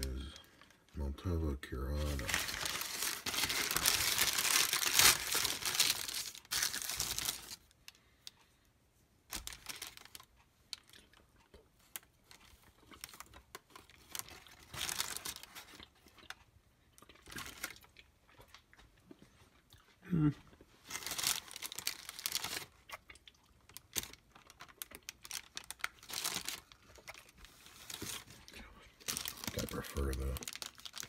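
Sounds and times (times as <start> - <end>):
wrapping paper crinkling and tearing: 2.0 - 7.7, 9.3 - 10.9, 13.0 - 15.8, 20.8 - 22.9, 23.7 - 31.0.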